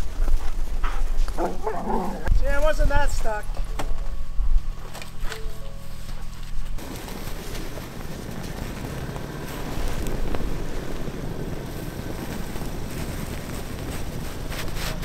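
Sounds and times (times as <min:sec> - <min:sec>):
truck engine running: 0:04.1 - 0:15.0
tyres churning in snow: 0:06.0 - 0:15.0.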